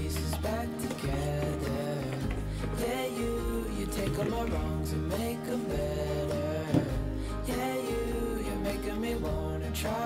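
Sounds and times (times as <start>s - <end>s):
background music with bass line: 0.0s - 10.0s.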